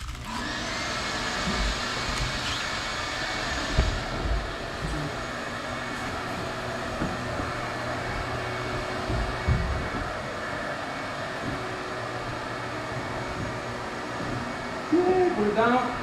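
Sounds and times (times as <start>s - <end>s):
air conditioning whooshing hum: 0.0s - 16.0s
dull thumps of furniture: 3.2s - 10.6s.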